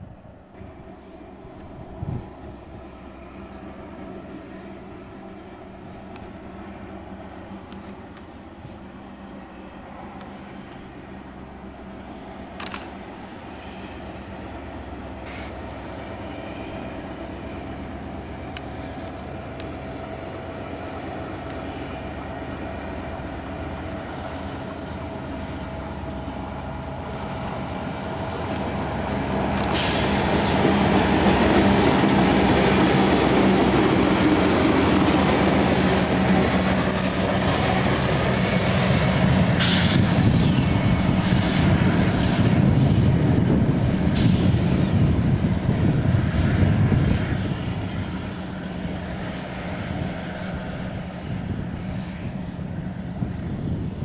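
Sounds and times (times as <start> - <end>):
diesel locomotive engines: 0.0 - 54.0
wheel squeal: 27.3 - 52.0.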